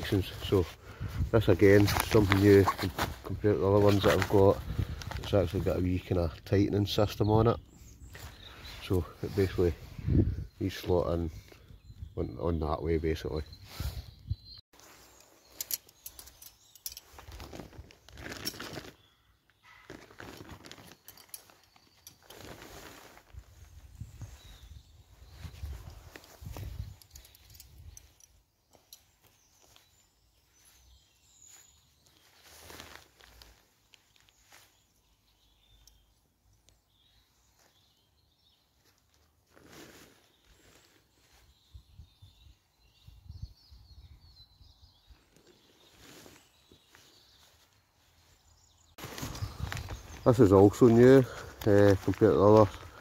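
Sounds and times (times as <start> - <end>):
tent fabric rustling: 0.1 - 6.1, 14.7 - 28.2, 29.0 - 35.5, 38.6 - 41.7, 45.4 - 53.0
metal tent pegs clinking: 1.3 - 6.2, 14.8 - 19.0, 19.6 - 23.4, 25.5 - 29.9
faint bird chirps: 6.7 - 17.6, 20.8 - 53.0.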